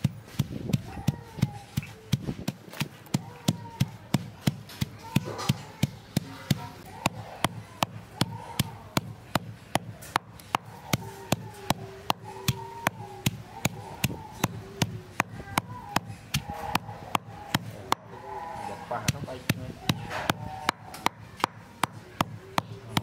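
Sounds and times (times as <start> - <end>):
pestle pounding in stone mortar: 0.0 - 23.0.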